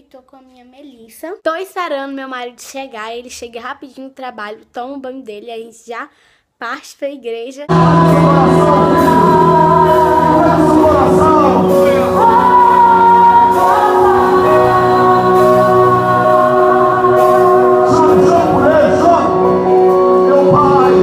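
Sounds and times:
woman singing through sound system: 0:07.7 - 0:18.7
sustained accompaniment: 0:07.7 - 0:21.0.

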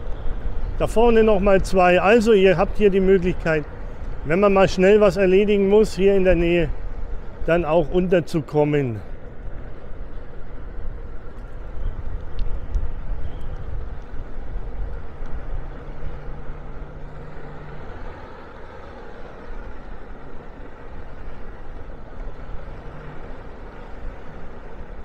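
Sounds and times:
wind and road noise: 0:00.0 - 0:25.0
motor scooter engine running: 0:09.2 - 0:25.0.

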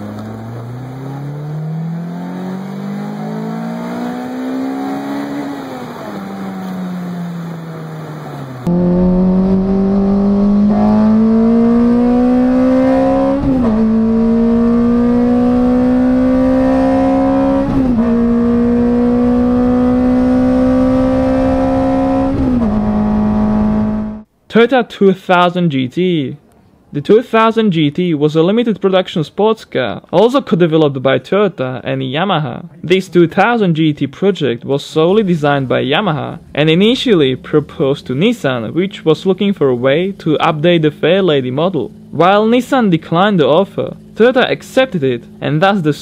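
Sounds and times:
car engine at high revs: 0:00.0 - 0:24.3
car engine revving: 0:00.0 - 0:24.3.

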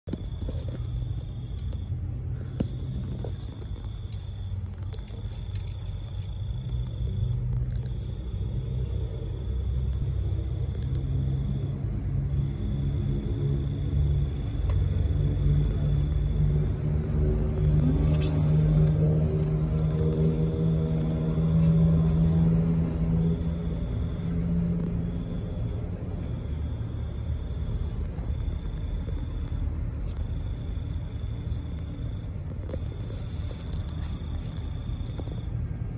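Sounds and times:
low steady rumble: 0:00.0 - 0:35.9
hum: 0:00.1 - 0:35.9.

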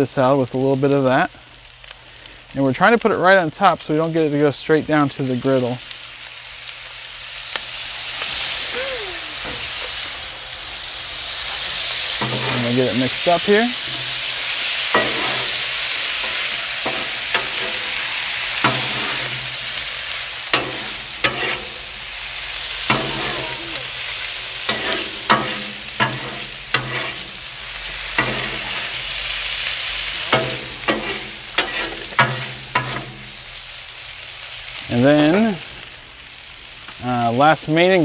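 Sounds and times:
food sizzling on a griddle: 0:00.0 - 0:38.0
spatula clacking on griddle: 0:12.2 - 0:12.6, 0:13.8 - 0:19.9, 0:20.5 - 0:22.0, 0:22.8 - 0:29.2, 0:30.1 - 0:33.4
metal spatula scraping griddle: 0:12.2 - 0:19.9, 0:20.5 - 0:22.1, 0:22.8 - 0:29.4, 0:30.0 - 0:33.4.

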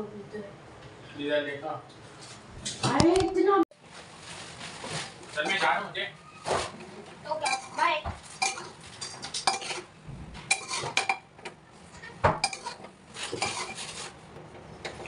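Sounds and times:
metal spoon scraping a pot: 0:07.3 - 0:09.9, 0:10.5 - 0:11.2, 0:11.9 - 0:14.2.

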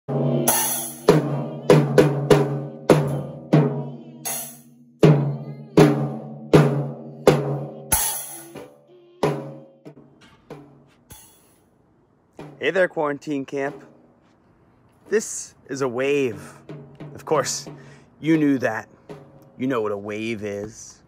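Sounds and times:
cymbal crash: 0:00.1 - 0:09.6
drum hits ringing: 0:00.1 - 0:11.6, 0:12.4 - 0:12.9, 0:13.5 - 0:14.2.

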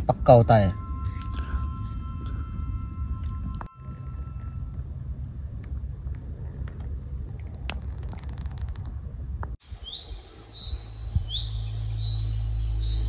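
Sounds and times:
low rumbling night ambience: 0:00.0 - 0:13.0
low steady hum: 0:00.0 - 0:13.0
campfire crackles: 0:01.0 - 0:10.0
birds chirping: 0:09.6 - 0:13.0.

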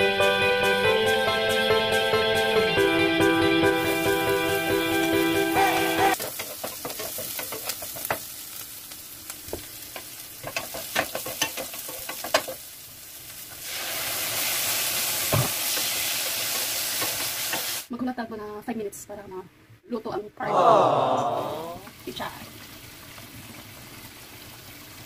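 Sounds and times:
food sizzling in a pan: 0:03.7 - 0:17.9, 0:21.8 - 0:25.0.

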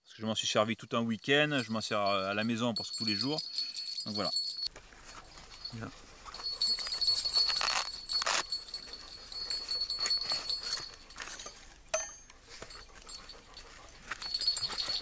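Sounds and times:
fabric pouch rustling: 0:04.8 - 0:11.4.

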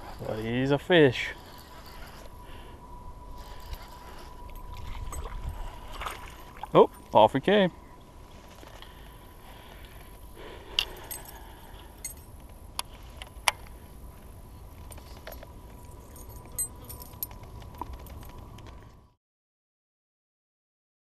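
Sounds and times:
fishing reel clicking: 0:03.4 - 0:04.3.

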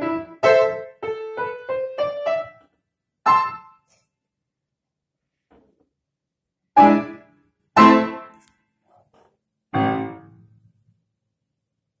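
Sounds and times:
piano chords: 0:00.0 - 0:03.7, 0:06.8 - 0:08.4, 0:09.7 - 0:10.6.

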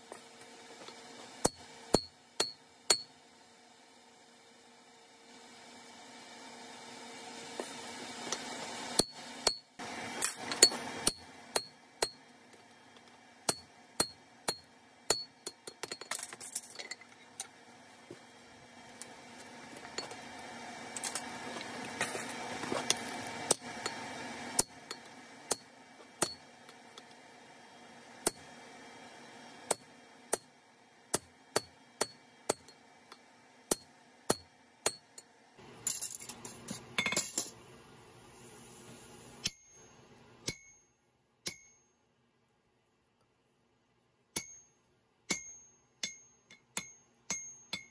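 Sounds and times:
hammer striking metal punch: 0:01.4 - 0:03.2, 0:09.0 - 0:12.4, 0:13.5 - 0:16.2, 0:24.6 - 0:26.8, 0:28.2 - 0:28.6, 0:29.7 - 0:35.2, 0:40.4 - 0:41.8, 0:44.4 - 0:47.9.

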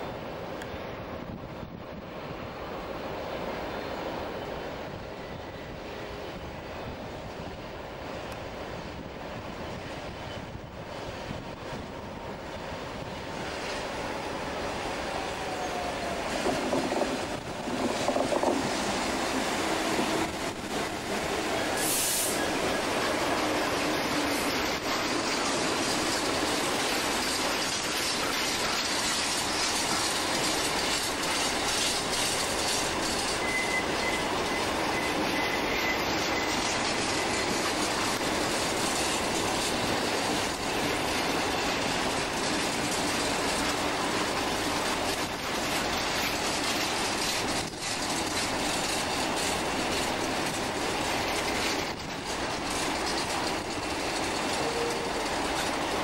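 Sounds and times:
train wheels clattering on rails: 0:00.0 - 0:56.0
wheel squeal: 0:30.7 - 0:38.2.

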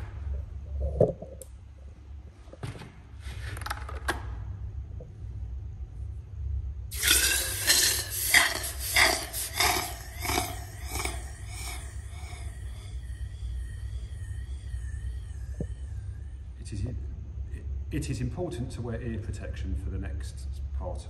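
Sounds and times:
hot pipe hissing in water: 0:06.9 - 0:16.2.

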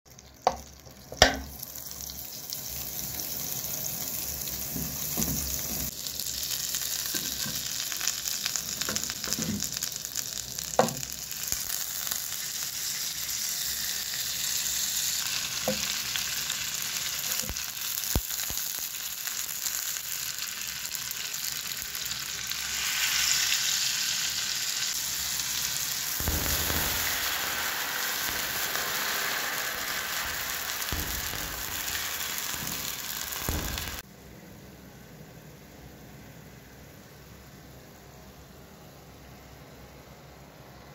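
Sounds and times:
mushrooms sizzling in pan: 0:00.1 - 0:34.0
spatula knocking pan: 0:00.4 - 0:01.5, 0:29.8 - 0:34.0
water poured into hot pan: 0:21.8 - 0:34.0.

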